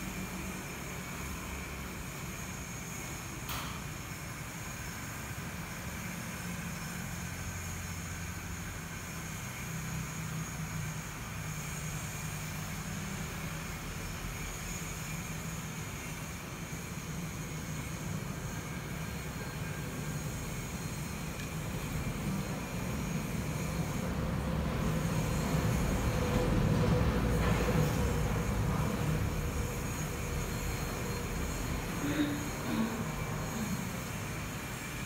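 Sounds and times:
faint hum: 15.9s - 35.0s.

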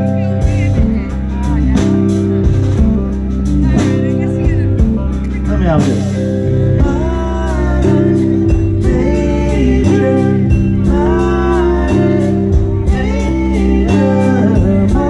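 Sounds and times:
keyboard: 0.0s - 15.0s
steady drum beat: 0.0s - 15.0s
person singing amplified: 3.6s - 15.0s.

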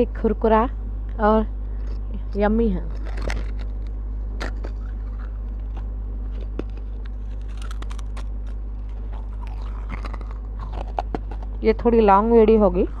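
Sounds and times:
biting and chewing clay: 2.8s - 13.0s.

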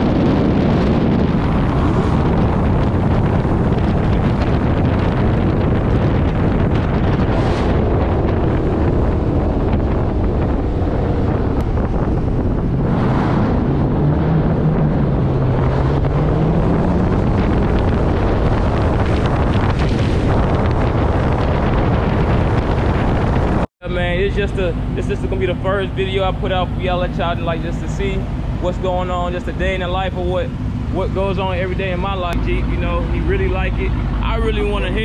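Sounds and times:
wind rushing over camera: 0.0s - 35.0s
low car engine note: 23.8s - 35.0s.

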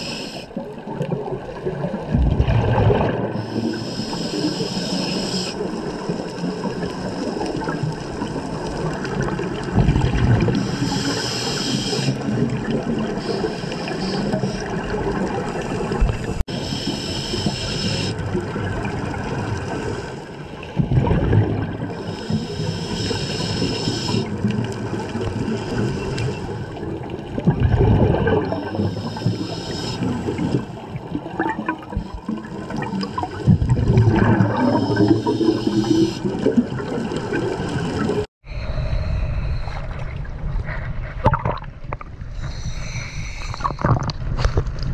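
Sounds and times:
regulator hiss on inhale: 0.0s - 0.6s, 3.4s - 7.5s, 10.5s - 12.2s, 13.2s - 14.9s, 16.3s - 18.2s, 22.0s - 24.3s, 28.6s - 30.7s, 34.8s - 36.3s, 42.4s - 43.8s
rush of bubbles: 0.5s - 4.9s, 5.5s - 16.4s, 18.1s - 38.3s.

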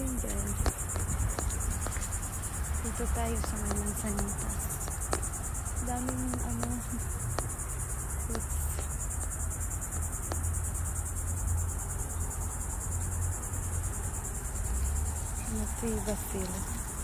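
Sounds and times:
low uneven rumble: 0.0s - 11.1s
insects chirring: 0.0s - 17.0s.

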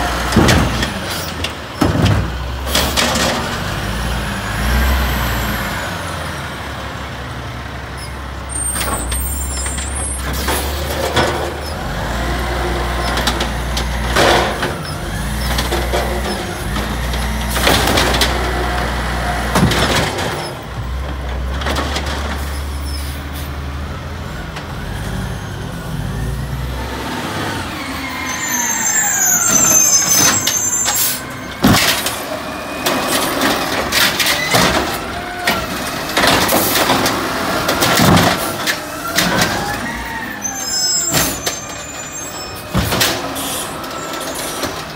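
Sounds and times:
carts banging on metal: 12.8s - 22.5s, 28.7s - 44.9s.

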